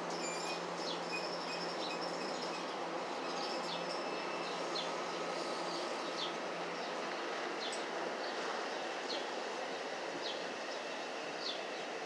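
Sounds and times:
high wheel squeaks: 0:00.1 - 0:04.5.

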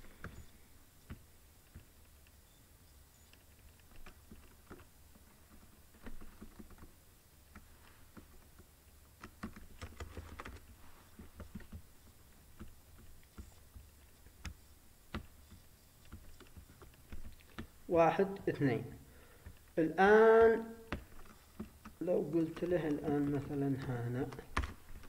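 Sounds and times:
keyboard typing and clicks: 0:00.0 - 0:18.4, 0:19.4 - 0:25.0.

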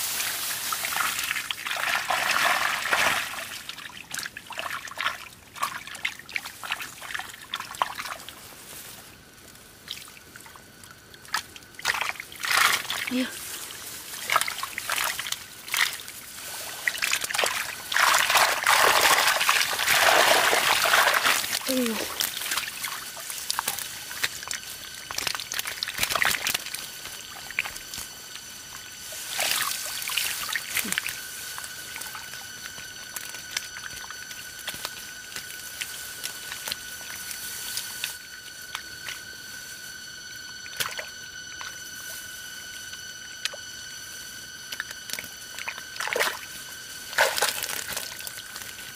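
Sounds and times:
water pouring: 0:00.0 - 0:08.4, 0:09.9 - 0:38.8
water splashing and trickling: 0:00.0 - 0:43.7, 0:44.5 - 0:48.9
high-pitched whine: 0:00.0 - 0:48.9.

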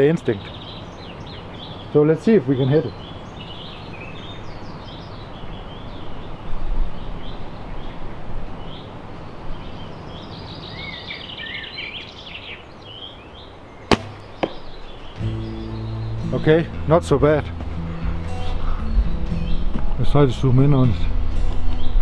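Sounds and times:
birds singing: 0:00.0 - 0:22.0
steady outdoor noise: 0:00.0 - 0:22.0
arrow striking foam target: 0:13.9 - 0:14.7.

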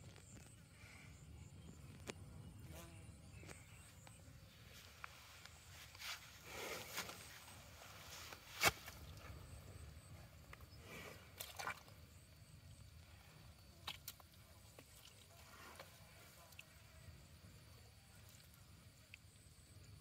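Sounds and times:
animals shifting in wet mud: 0:10.4 - 0:19.3.

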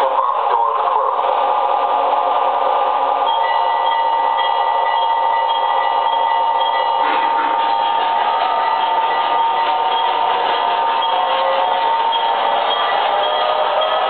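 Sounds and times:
model diesel locomotive rumble: 0:00.0 - 0:14.0
locomotive bell ringing: 0:03.2 - 0:14.0.

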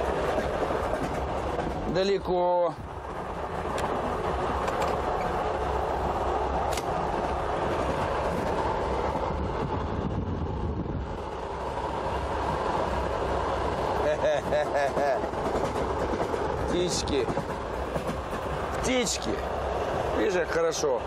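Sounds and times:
train wheels rumbling on rail: 0:00.0 - 0:21.0
sharp click: 0:06.7 - 0:06.9.

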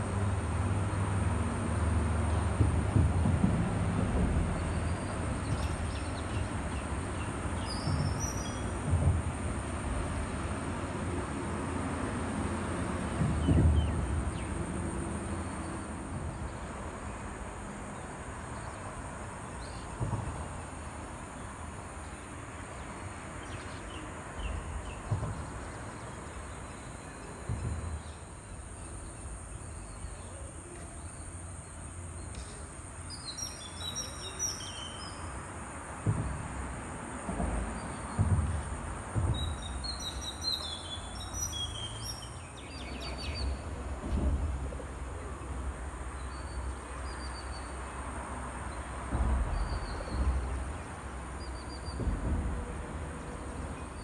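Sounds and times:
low rumbling thumps: 0:02.5 - 0:06.4, 0:13.1 - 0:15.1, 0:37.2 - 0:40.6, 0:49.1 - 0:53.7.

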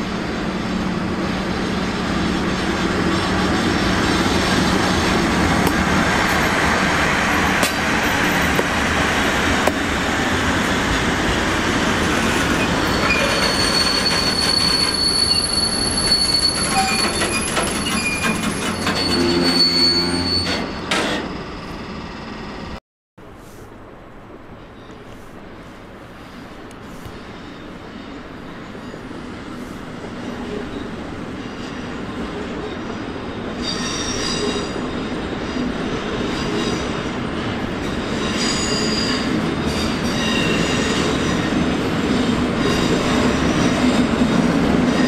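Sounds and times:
locomotive hum: 0:00.0 - 0:45.0
high wheel squeal: 0:12.4 - 0:22.7, 0:30.5 - 0:37.0, 0:38.1 - 0:41.5.

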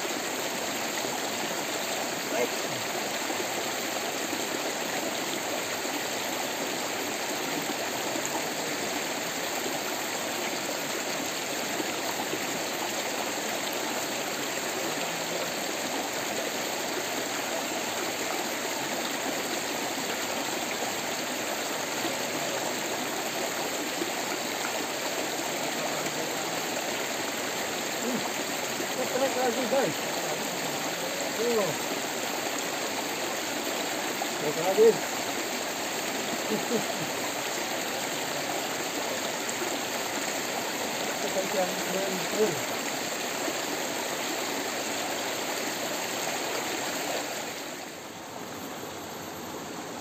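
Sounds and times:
stream splashing over stones: 0:00.0 - 0:48.1.

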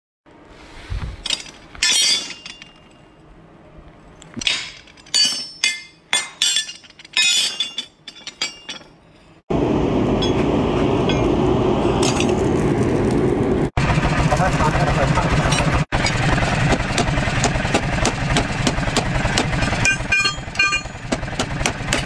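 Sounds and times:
metal blades clinking: 0:01.2 - 0:03.3, 0:04.1 - 0:09.4, 0:19.8 - 0:21.1
forge fire roaring: 0:09.5 - 0:19.9.

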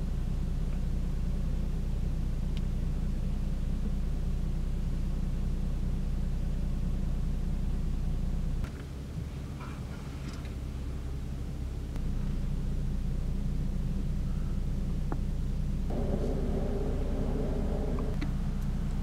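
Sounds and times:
steady low rumble: 0:11.8 - 0:19.0.

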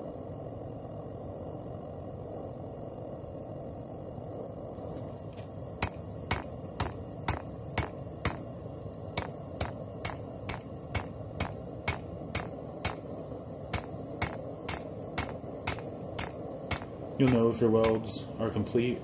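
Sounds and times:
low background rush: 0:00.0 - 0:19.0
hammer striking hot metal on anvil: 0:09.2 - 0:13.1, 0:13.7 - 0:18.2.

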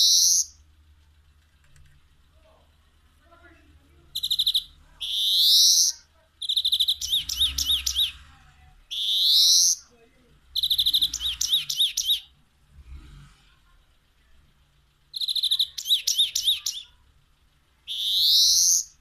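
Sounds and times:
finch singing trills and wheezes: 0:00.0 - 0:00.6, 0:04.2 - 0:09.9, 0:10.5 - 0:12.4, 0:15.2 - 0:17.0, 0:17.8 - 0:19.0.

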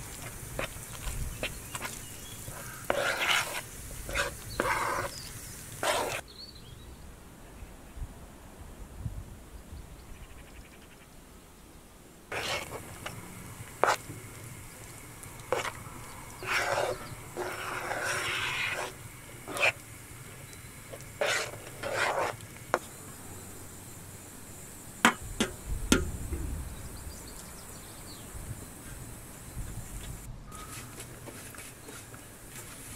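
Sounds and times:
spoon stirring in metal pan: 0:00.0 - 0:06.2, 0:12.3 - 0:23.0, 0:25.0 - 0:26.4.

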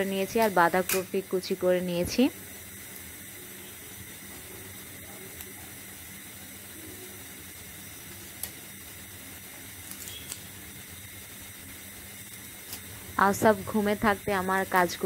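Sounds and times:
scissors snipping chillies: 0:09.9 - 0:10.5.

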